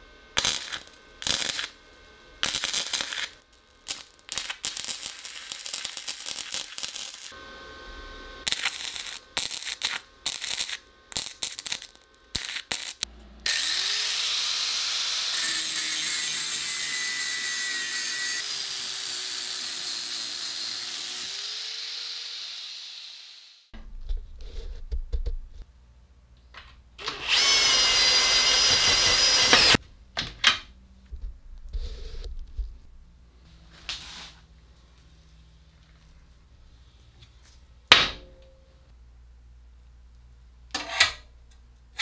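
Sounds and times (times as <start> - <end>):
welding arc crackling: 0.4 - 7.4, 8.2 - 13.1, 27.0 - 29.8
power tool running with hiss: 12.4 - 23.7, 27.0 - 29.8.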